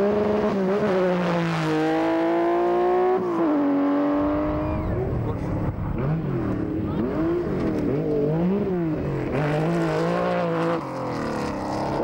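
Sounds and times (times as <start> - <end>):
rally car engine accelerating: 0.0 - 12.0.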